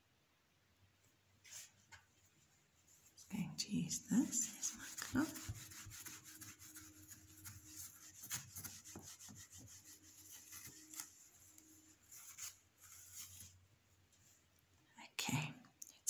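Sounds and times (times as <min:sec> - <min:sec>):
cloth rubbing on whiteboard: 0:01.4 - 0:13.6.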